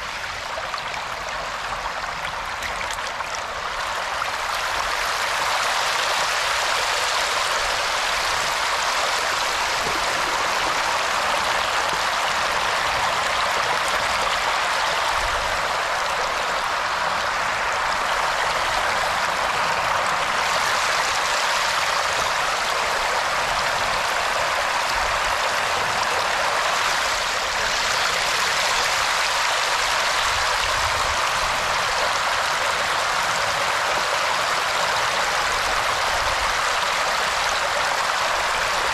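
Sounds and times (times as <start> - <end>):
water rushing: 0.0 - 38.9.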